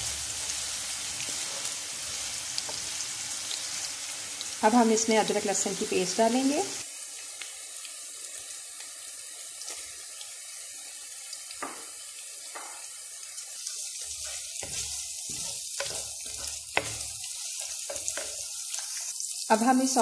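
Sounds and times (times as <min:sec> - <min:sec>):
onions sizzling in oil: 0:00.0 - 0:20.0
spoon scraping pan: 0:13.9 - 0:19.2.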